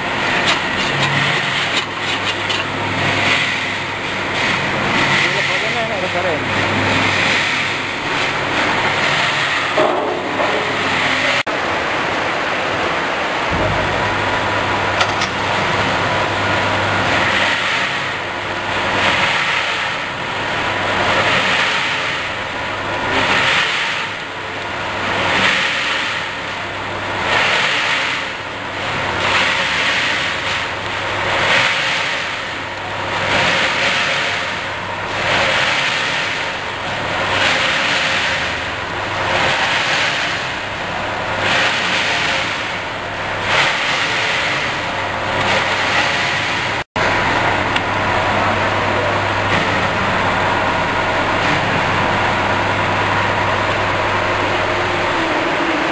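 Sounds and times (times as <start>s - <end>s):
rotary dryer drum whooshing: 0.0s - 55.9s.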